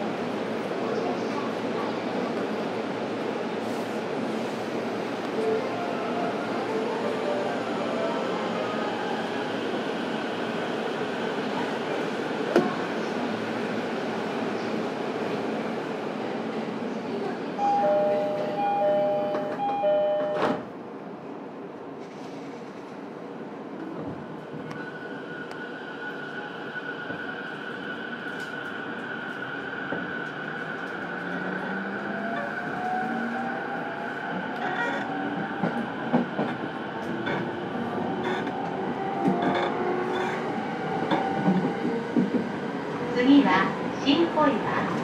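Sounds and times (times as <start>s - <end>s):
train door chime: 17.6s - 20.7s.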